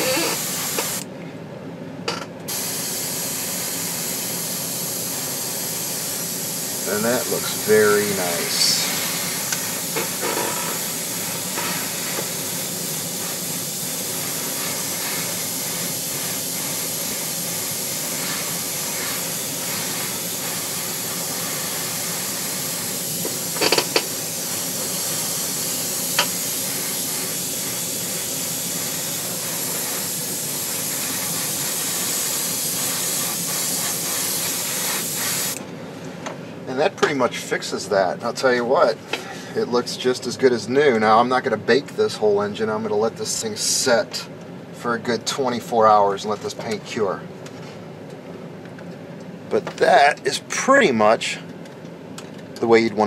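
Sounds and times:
airbrush air hiss: 0:00.0 - 0:01.0, 0:02.5 - 0:35.6.

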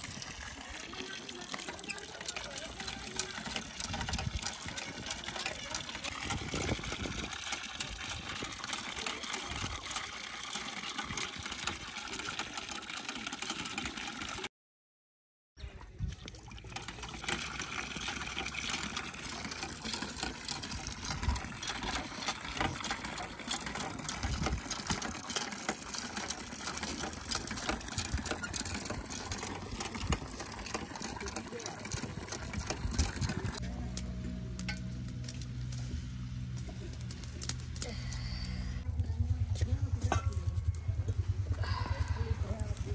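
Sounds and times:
liquid sloshing and splashing: 0:00.0 - 0:14.5, 0:15.7 - 0:33.6.

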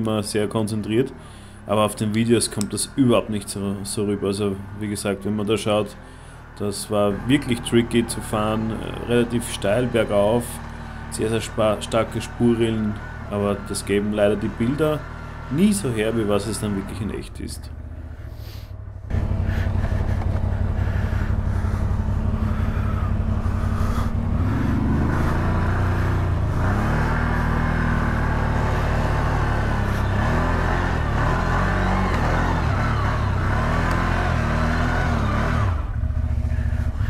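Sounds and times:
atv engine revving: 0:00.0 - 0:37.0.

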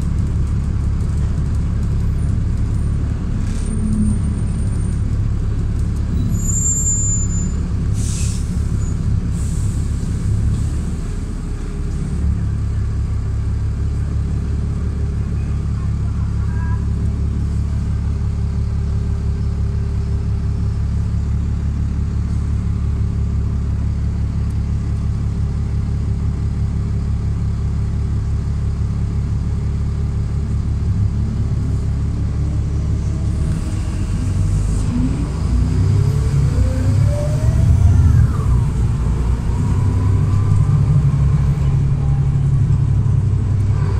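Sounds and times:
diesel bus engine: 0:00.0 - 0:43.9.

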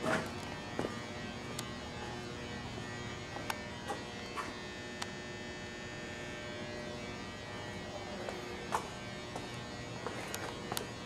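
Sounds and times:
electrical hum and buzz: 0:00.0 - 0:11.0.

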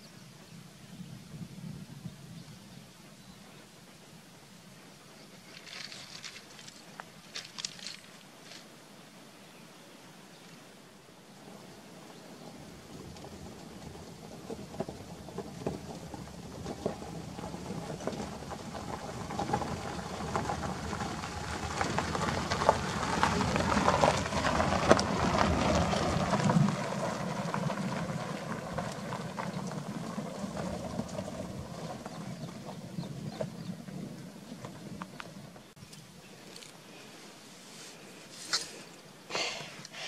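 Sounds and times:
tyres crunching on gravel: 0:05.4 - 0:08.8, 0:12.4 - 0:36.9.

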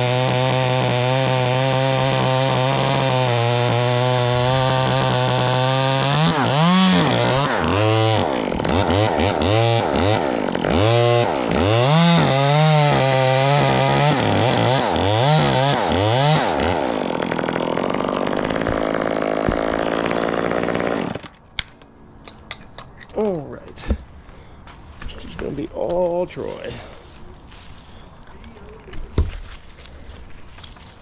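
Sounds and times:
chainsaw revving: 0:00.0 - 0:21.3.

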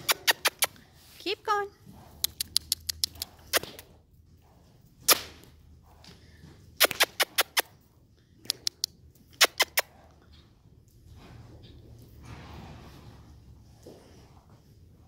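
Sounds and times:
tongue clicks: 0:00.0 - 0:00.8, 0:02.2 - 0:03.8, 0:06.8 - 0:07.7, 0:08.4 - 0:09.9.

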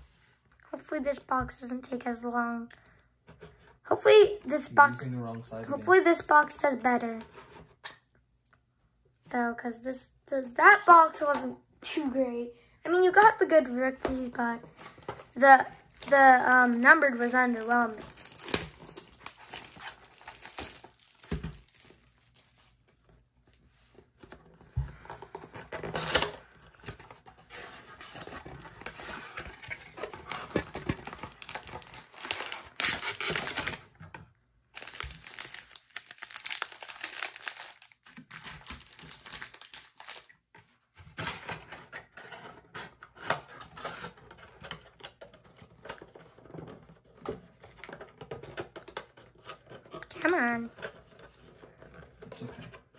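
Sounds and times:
plastic wrappers crinkling: 0:14.1 - 0:23.1, 0:25.5 - 0:34.0, 0:34.7 - 0:40.5.

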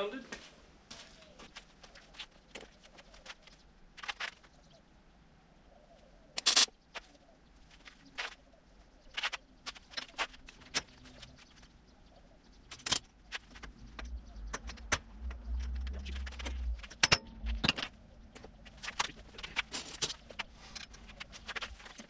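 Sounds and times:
metal clinks and knocks: 0:12.7 - 0:18.5.

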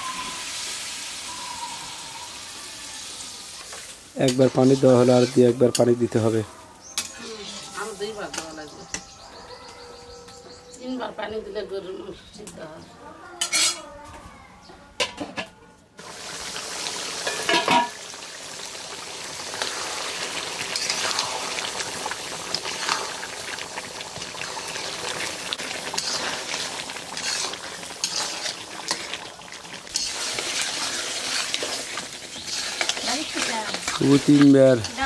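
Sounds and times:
curry sizzling and bubbling: 0:00.0 - 0:11.1, 0:16.0 - 0:35.0
metal spatula scraping pot: 0:04.2 - 0:06.4, 0:07.0 - 0:09.1, 0:13.4 - 0:13.8, 0:17.2 - 0:18.0, 0:20.7 - 0:21.8, 0:24.2 - 0:35.0
metal lid clanking: 0:17.2 - 0:18.0.

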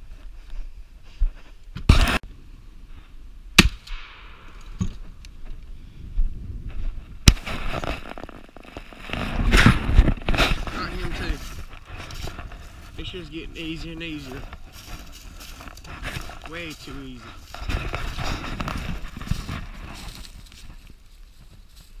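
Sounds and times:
shotgun blasts: 0:03.6 - 0:04.5
rustling and handling noise: 0:06.7 - 0:22.0.

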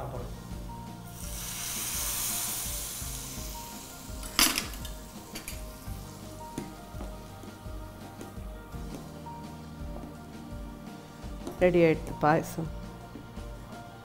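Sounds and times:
hot oil hissing and sizzling: 0:01.0 - 0:06.4.

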